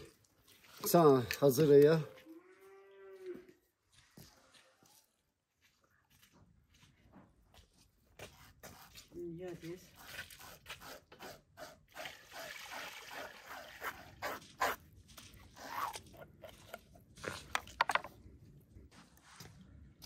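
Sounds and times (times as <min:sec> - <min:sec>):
knife cleaning raw fish: 0:08.2 - 0:12.5.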